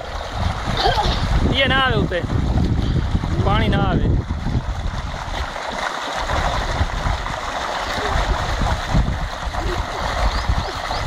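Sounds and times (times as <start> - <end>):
children splashing in water: 0.0 - 1.5, 4.2 - 11.0
water gushing into a tank: 0.0 - 11.0.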